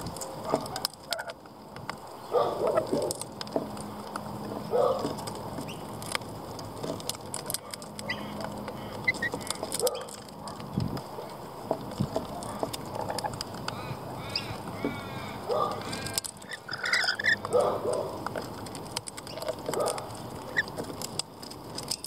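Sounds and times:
beaks cracking seed: 0:00.0 - 0:22.0
parrots chattering calls: 0:12.4 - 0:18.1
rising and falling bird calls: 0:13.7 - 0:17.4.

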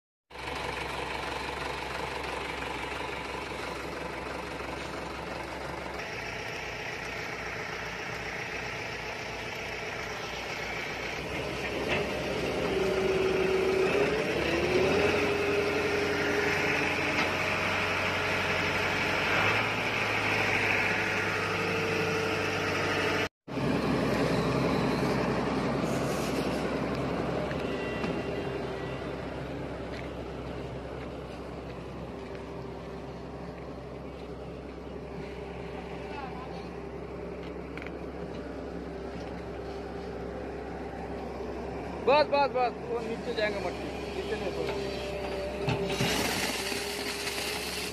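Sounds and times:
heavy diesel machinery running: 0:00.3 - 0:47.9
excavator bucket digging soil: 0:44.2 - 0:47.9.

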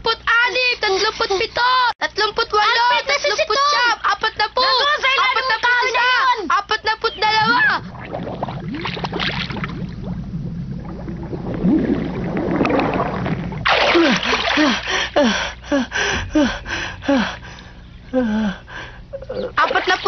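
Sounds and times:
underwater bubbling: 0:07.2 - 0:14.9
low rumble: 0:07.3 - 0:13.7
water splash: 0:07.4 - 0:14.7
boy panting for air: 0:14.0 - 0:19.1.

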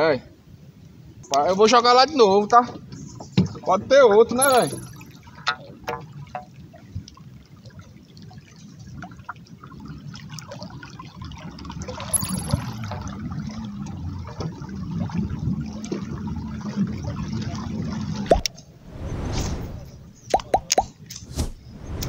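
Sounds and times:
water lapping along hull: 0:05.4 - 0:12.1, 0:13.0 - 0:18.9.

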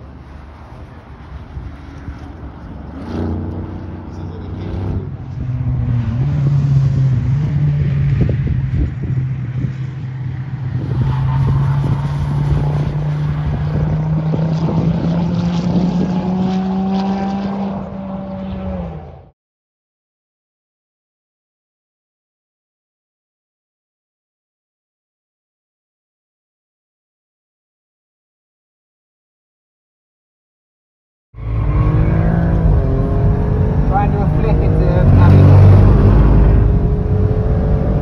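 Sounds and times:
sports car engine accelerating: 0:00.2 - 0:19.3, 0:31.4 - 0:38.0.

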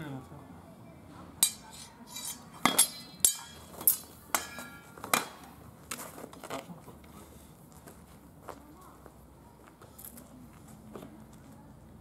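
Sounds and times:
swords and bucklers clashing: 0:01.4 - 0:05.5.

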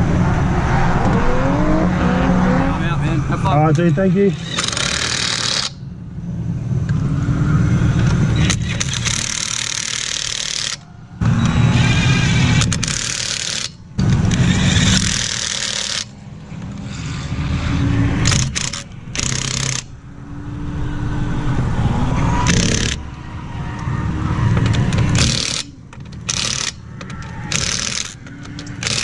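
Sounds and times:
impact wrench hammering: 0:04.4 - 0:05.8, 0:08.4 - 0:10.8, 0:11.8 - 0:16.1, 0:18.2 - 0:19.9, 0:22.4 - 0:23.0, 0:24.6 - 0:29.0.

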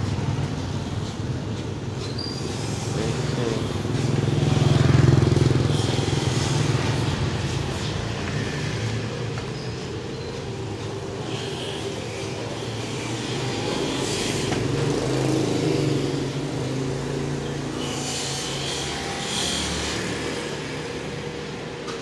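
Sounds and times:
small motorcycle engine running: 0:02.5 - 0:08.6.

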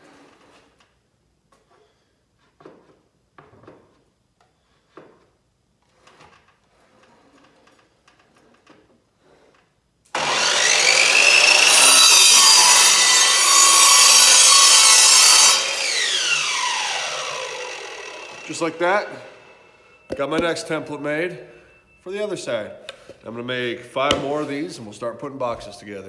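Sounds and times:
miter saw cutting wood: 0:10.2 - 0:20.9.

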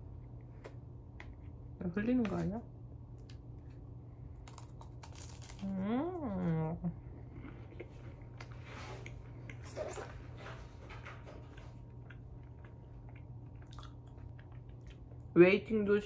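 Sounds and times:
low room hum: 0:00.0 - 0:16.0
crunching and chewing cracker: 0:04.3 - 0:05.9, 0:11.8 - 0:15.2.

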